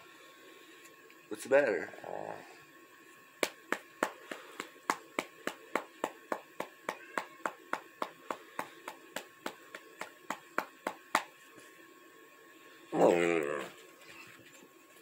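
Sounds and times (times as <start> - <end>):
sharp taps: 3.4 - 11.3.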